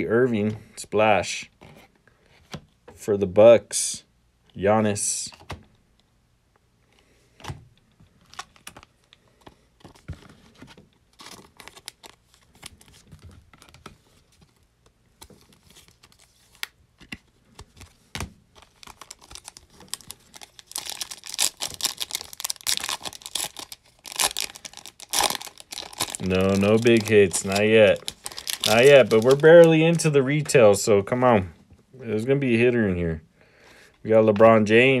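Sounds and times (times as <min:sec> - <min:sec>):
plastic wrapper crinkling: 0:08.2 - 0:09.2, 0:09.8 - 0:14.6, 0:17.5 - 0:30.6.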